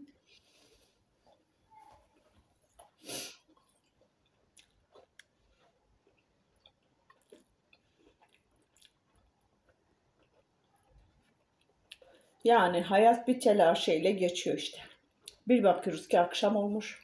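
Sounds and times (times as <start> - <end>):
person chewing candy: 0.1 - 12.4.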